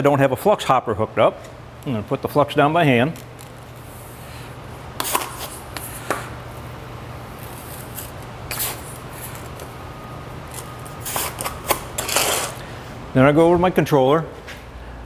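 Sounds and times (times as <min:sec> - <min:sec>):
low steady hum: 0:00.0 - 0:15.0
sharp scrapes: 0:10.5 - 0:12.6.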